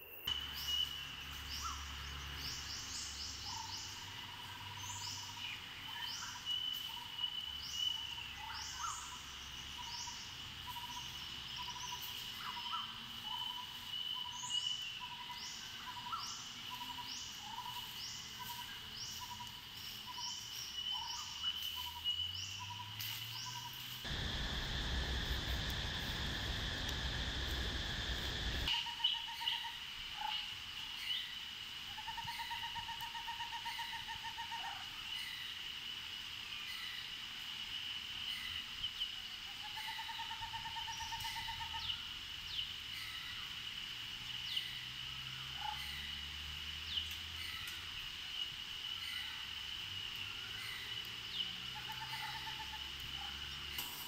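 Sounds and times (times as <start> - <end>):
loud rushing noise: 24.1 - 28.7.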